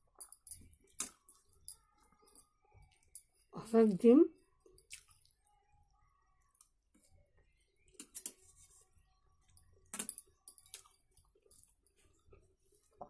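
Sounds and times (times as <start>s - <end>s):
chewing: 4.6s - 5.6s.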